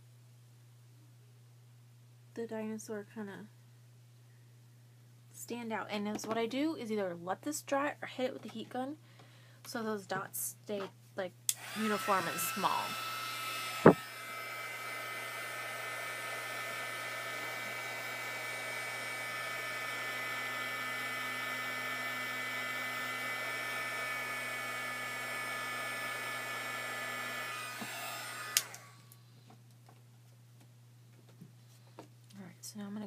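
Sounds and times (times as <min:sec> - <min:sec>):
heat gun blowing with whine: 0:11.5 - 0:29.3
heat gun switch click: 0:27.8 - 0:28.8.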